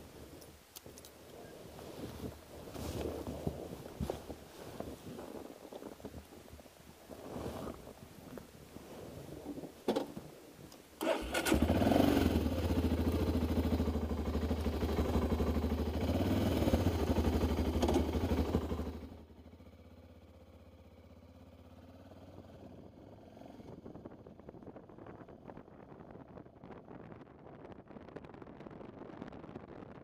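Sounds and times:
motorcycle starter clicks: 11.0 - 11.8
motorcycle engine idling: 12.4 - 22.4.

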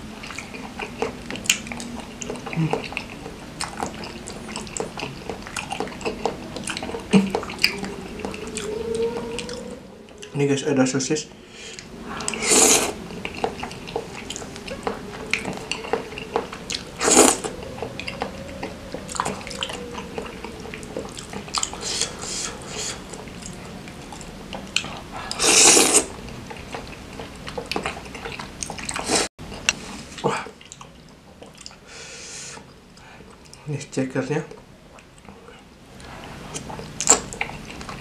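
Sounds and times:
wet chewing and lip smacks: 0.2 - 10.4, 13.2 - 29.8, 36.2 - 38.0
loud slurps: 11.5 - 23.6, 24.2 - 26.9.

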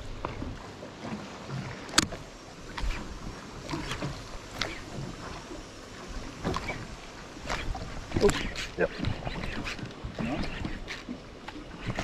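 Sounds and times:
water slapping against boat hull: 0.0 - 12.0.

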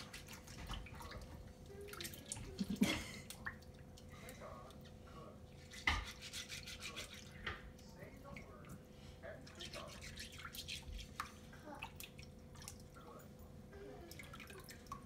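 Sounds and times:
water sloshing: 0.0 - 4.1
rice grains rubbed against pot: 5.7 - 7.3.

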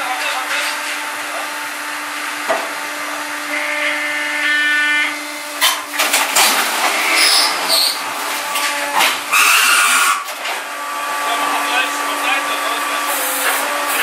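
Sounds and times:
wood processor machine humming: 0.0 - 14.0.

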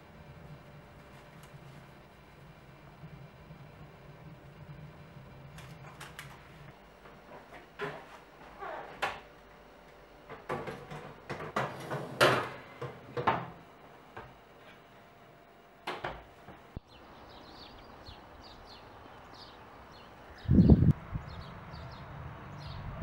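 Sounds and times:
birds chirping: 16.8 - 23.0.

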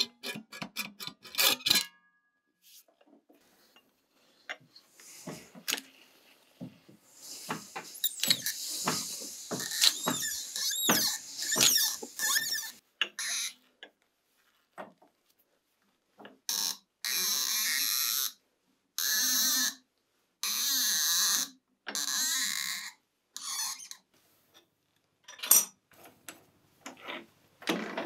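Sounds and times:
squeaky metal scraping: 7.9 - 13.6.

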